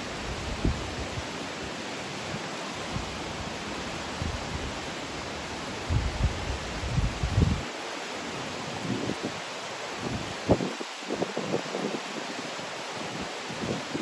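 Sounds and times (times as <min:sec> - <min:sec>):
steady outdoor hiss: 0:00.0 - 0:14.0
wind buffeting microphone: 0:00.3 - 0:01.2, 0:05.8 - 0:07.7.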